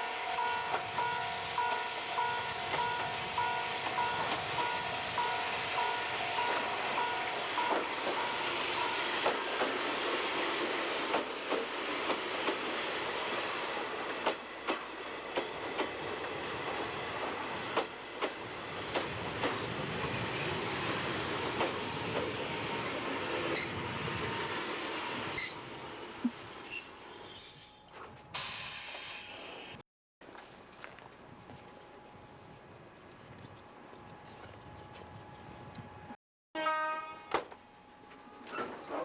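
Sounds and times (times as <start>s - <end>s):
train rumbling: 0.0s - 27.2s
high-pitched wheel squeals: 25.3s - 28.0s.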